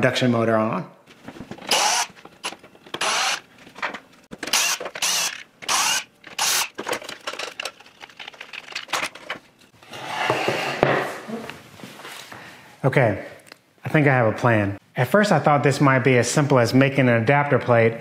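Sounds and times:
metal parts clicking and rattling: 0:01.5 - 0:09.5
cordless drill running: 0:01.6 - 0:03.4, 0:04.5 - 0:06.8.

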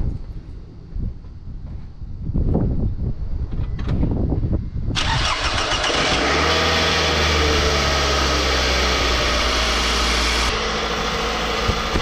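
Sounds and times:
car engine cranking and idling: 0:05.0 - 0:12.0.

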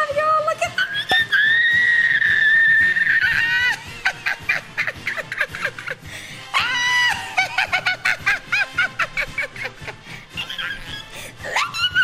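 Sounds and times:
woman squealing: 0:00.6 - 0:05.3, 0:06.5 - 0:08.4, 0:10.4 - 0:12.0
woman giggling: 0:03.4 - 0:06.1, 0:07.0 - 0:12.0.

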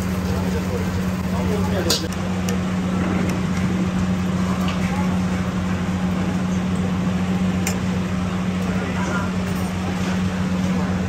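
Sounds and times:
low machine hum: 0:00.0 - 0:11.0
murmur of voices: 0:00.0 - 0:11.0.

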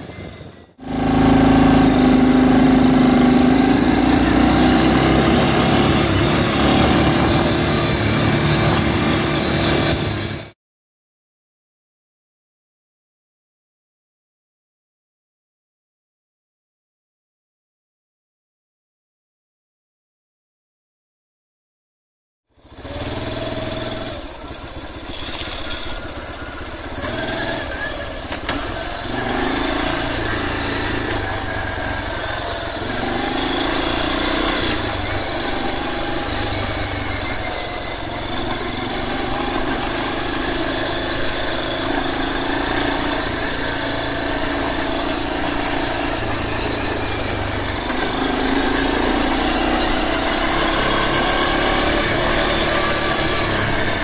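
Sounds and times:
quad bike engine running: 0:00.0 - 0:10.6, 0:22.5 - 0:54.0.

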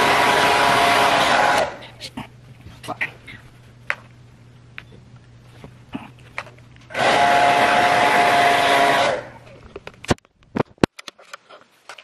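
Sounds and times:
hair dryer blowing: 0:00.0 - 0:01.8, 0:06.9 - 0:09.4.

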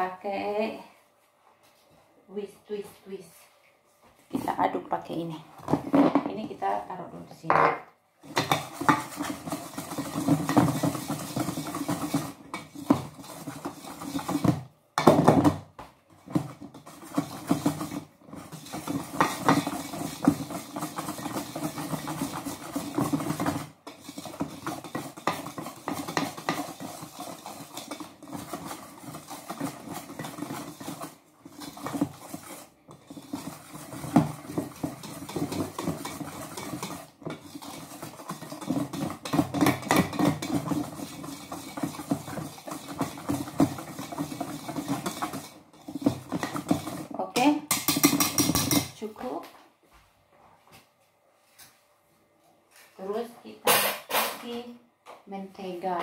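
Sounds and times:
wire whisk clinking in metal bowl: 0:47.7 - 0:48.9.

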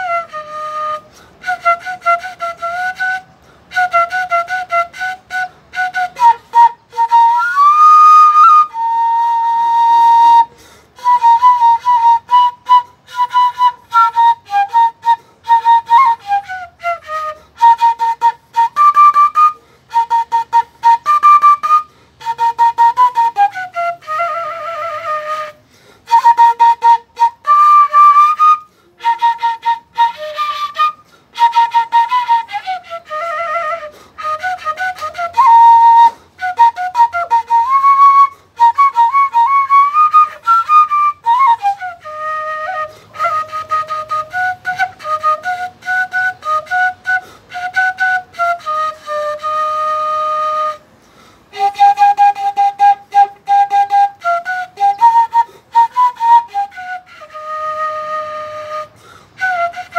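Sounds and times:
flute playing lively melody: 0:00.0 - 0:59.9.

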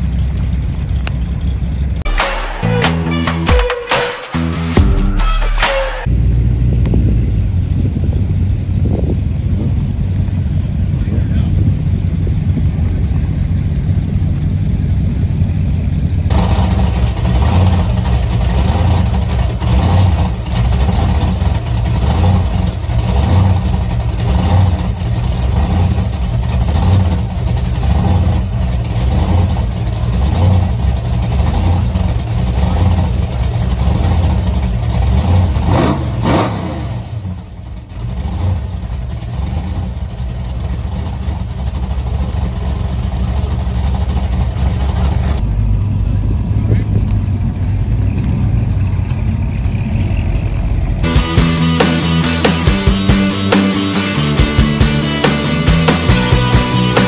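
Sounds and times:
car engine rolling by: 0:00.0 - 0:03.5, 0:06.0 - 0:57.0
engine idling with pulsing lope: 0:00.0 - 0:57.0
sharp crack: 0:02.0 - 0:06.1.

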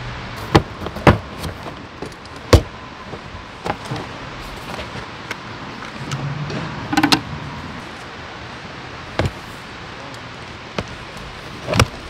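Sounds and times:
steady hiss: 0:00.0 - 0:12.0
hard clicks and knocks: 0:06.9 - 0:07.2.

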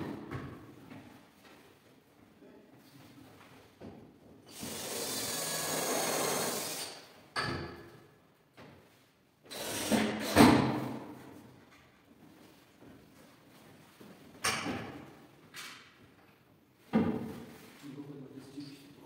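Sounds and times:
power drill running: 0:04.5 - 0:07.0, 0:09.5 - 0:10.4.

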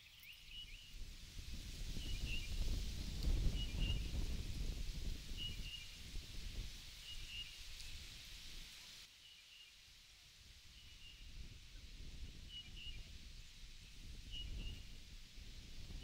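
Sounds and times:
leaves rustling: 0:00.0 - 0:10.6
wind rumbling on microphone: 0:00.5 - 0:09.0, 0:10.6 - 0:16.0.

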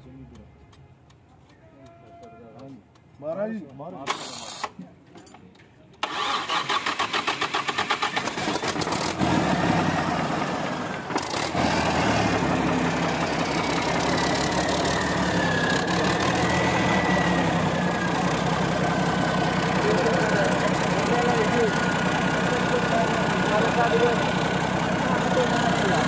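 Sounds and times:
starter motor cranking: 0:04.0 - 0:04.8, 0:06.0 - 0:26.0
diesel truck engine running: 0:06.0 - 0:26.0.

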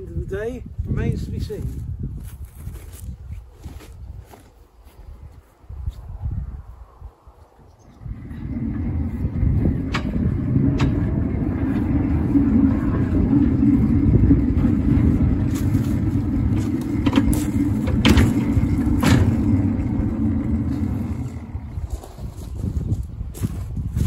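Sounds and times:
small locomotive engine running: 0:07.9 - 0:22.7.

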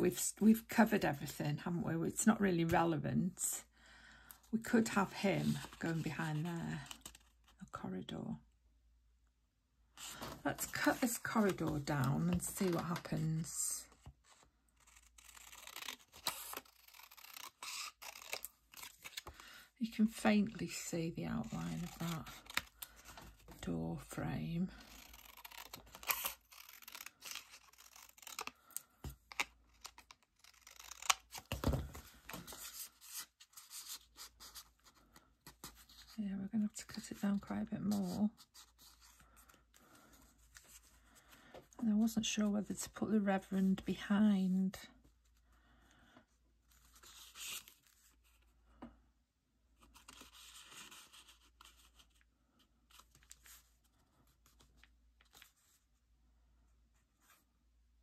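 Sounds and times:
scissors snipping paper: 0:24.8 - 0:28.5.

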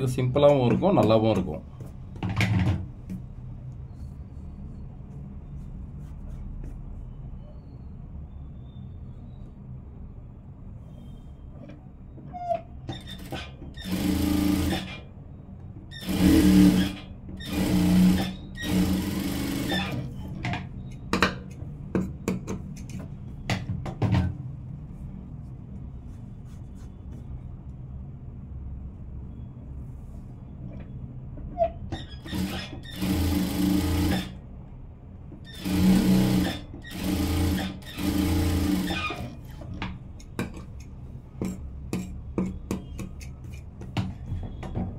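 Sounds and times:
sewing machine stitching: 0:13.0 - 0:15.1, 0:16.0 - 0:20.5, 0:32.0 - 0:34.4, 0:35.5 - 0:39.7.

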